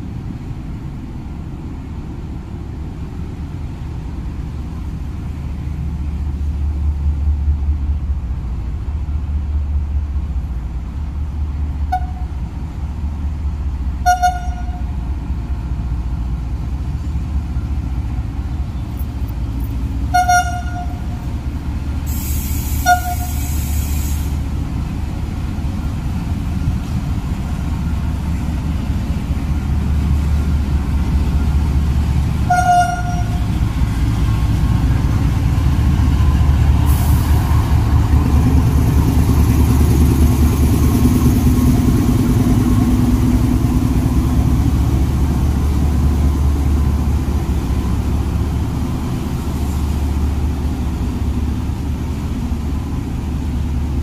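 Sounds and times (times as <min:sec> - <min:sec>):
diesel locomotive engine rumble: 0:00.0 - 0:54.0
train horn toots: 0:11.9 - 0:12.4, 0:14.0 - 0:14.9, 0:20.1 - 0:21.2, 0:22.8 - 0:23.6, 0:32.4 - 0:33.6
air hiss: 0:22.0 - 0:24.6, 0:36.8 - 0:37.7.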